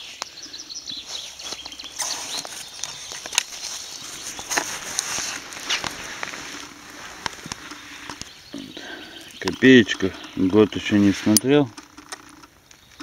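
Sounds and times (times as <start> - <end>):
rustling in dry leaf litter: 0.0 - 8.6
sharp clicks and knocks: 9.4 - 13.0.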